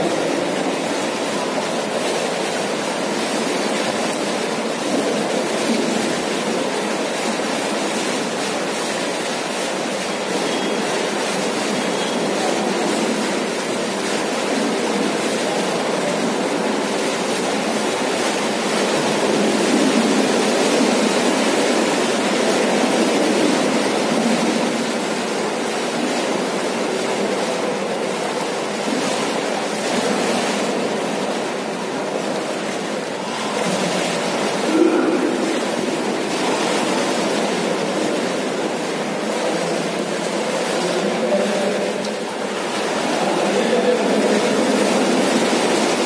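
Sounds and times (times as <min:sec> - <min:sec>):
pool water splashing: 0:00.0 - 0:46.0.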